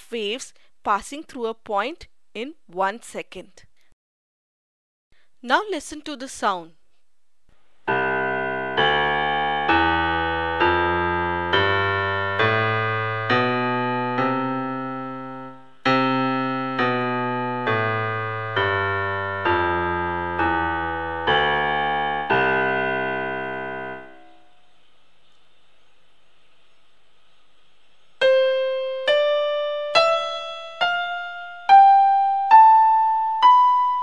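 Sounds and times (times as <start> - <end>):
electronic keyboard piano chords: 7.8 - 24.6, 28.2 - 34.0.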